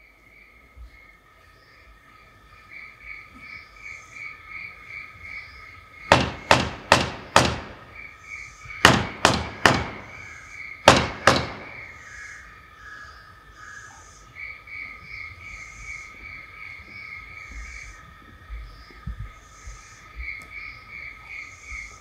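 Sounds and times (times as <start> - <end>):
crickets chirping: 0.0 - 22.0
frogs croaking: 0.0 - 22.0
loud sharp knocks: 6.1 - 8.0, 8.8 - 12.0.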